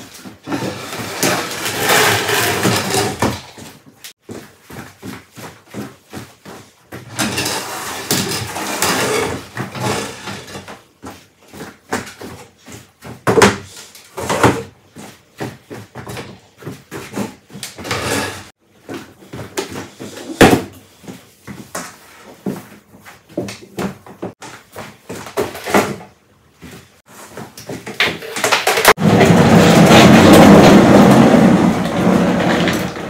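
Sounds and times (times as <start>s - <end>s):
scraping and rustling: 0.0s - 3.8s
knocks and clunks of objects: 0.0s - 5.2s, 5.8s - 14.8s, 15.4s - 26.2s, 27.3s - 33.0s.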